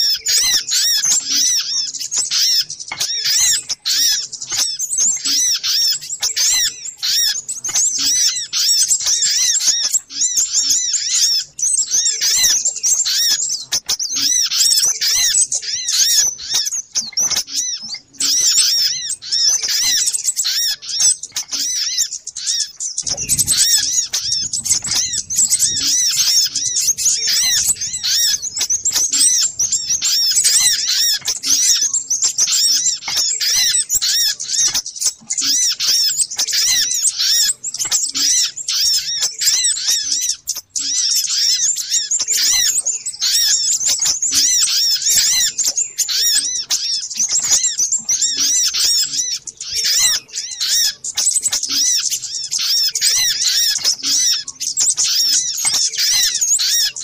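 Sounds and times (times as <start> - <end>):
sunbird chirps and twitters: 0.0 - 57.0.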